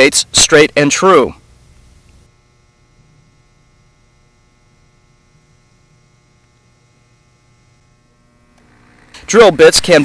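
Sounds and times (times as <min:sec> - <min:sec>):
faint electrical mains hum: 0:00.0 - 0:10.0.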